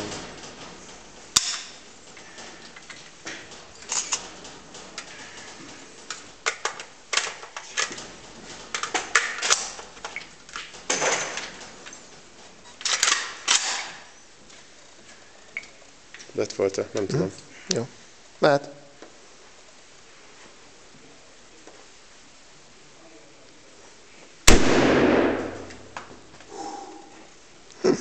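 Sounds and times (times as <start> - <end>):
rifle metallic clicks and clatters: 0.4 - 12.0, 12.8 - 14.1
sharp crack: 24.5 - 26.2.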